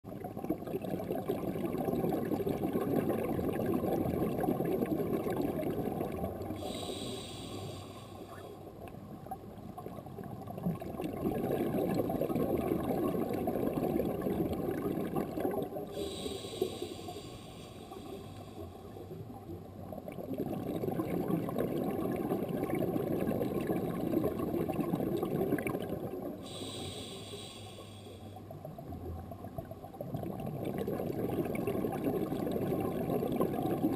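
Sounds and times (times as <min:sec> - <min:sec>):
underwater exhaled bubbles gurgling: 0:00.0 - 0:33.9
regulator hissing inhalation: 0:06.6 - 0:08.3, 0:15.9 - 0:19.0, 0:26.4 - 0:28.4.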